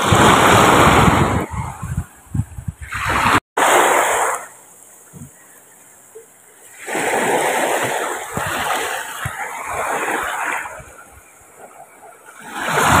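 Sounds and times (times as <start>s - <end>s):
seawater splashing around boat: 2.8s - 13.0s.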